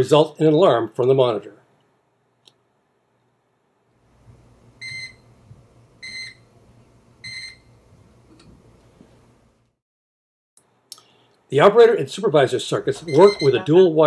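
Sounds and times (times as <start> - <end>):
high electronic alarm beeps: 13.0 - 13.7.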